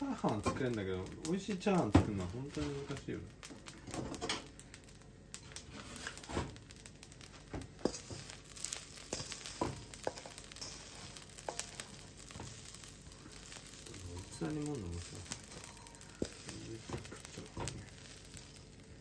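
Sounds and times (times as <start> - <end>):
faint sizzle: 0.0 - 19.0
wooden spatula scraping wok: 5.5 - 19.0.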